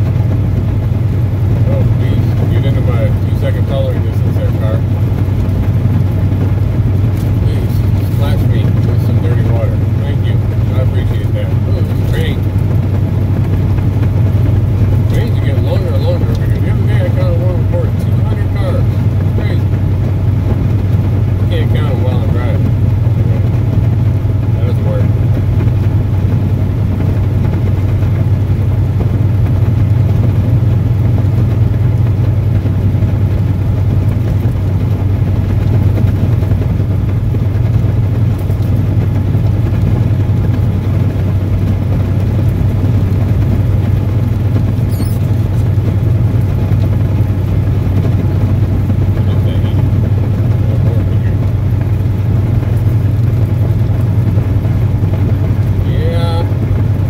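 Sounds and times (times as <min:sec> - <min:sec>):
truck engine drone: 0:00.0 - 0:57.0
tyre noise on wet road: 0:00.0 - 0:57.0.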